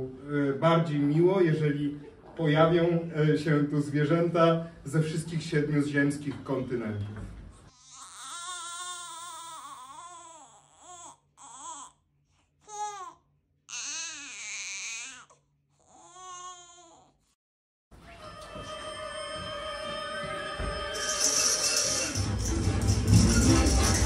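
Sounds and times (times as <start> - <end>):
baby crying: 7.7 - 12.0, 12.6 - 17.2
music: 18.0 - 24.0.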